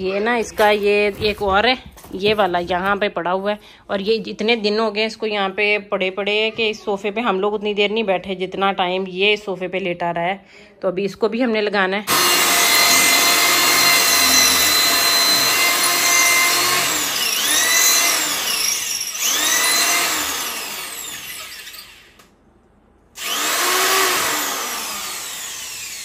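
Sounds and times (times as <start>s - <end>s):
electric drill boring into wall: 12.1s - 22.3s, 23.2s - 26.0s.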